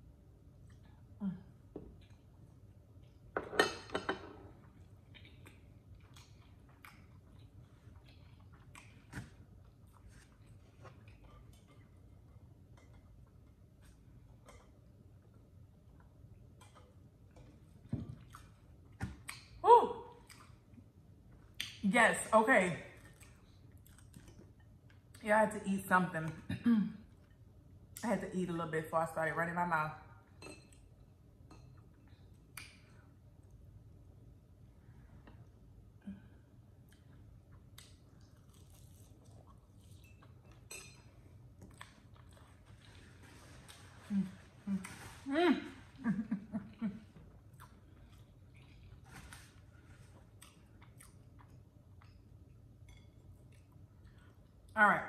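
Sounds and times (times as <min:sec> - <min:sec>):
person chewing food: 0:01.9 - 0:03.3, 0:04.6 - 0:19.6, 0:23.0 - 0:25.2, 0:35.2 - 0:45.2, 0:47.2 - 0:54.7.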